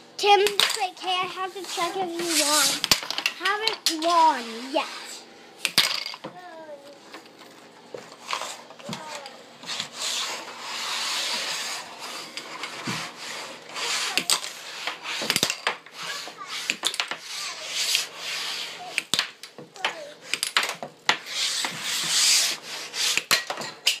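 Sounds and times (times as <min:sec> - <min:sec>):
pucks clacking against rails: 0:00.2 - 0:04.3
pucks sliding with a hiss: 0:01.2 - 0:03.0, 0:03.8 - 0:05.3, 0:08.0 - 0:19.2, 0:19.8 - 0:23.5.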